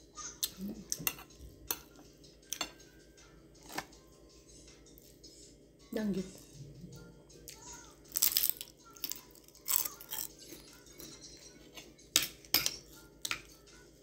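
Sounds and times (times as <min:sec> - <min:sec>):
crunching and chewing fried fish: 0:08.1 - 0:10.7.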